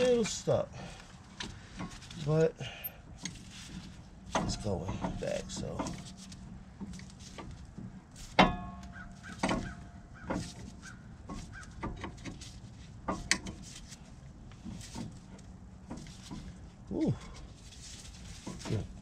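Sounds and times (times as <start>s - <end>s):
metal clamp clicks and knocks: 4.3s - 13.9s.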